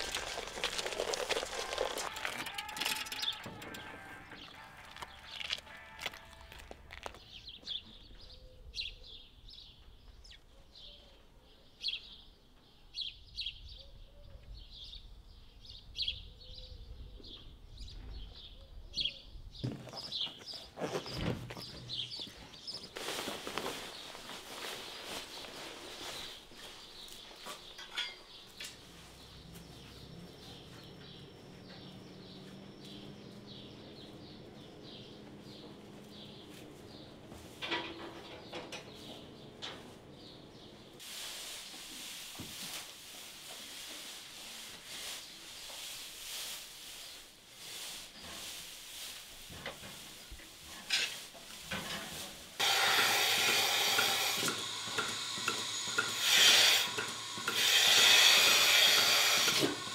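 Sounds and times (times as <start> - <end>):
knocks and clanks: 2.0 - 6.3, 37.4 - 39.9
milking machine suction hiss: 52.6 - 59.9.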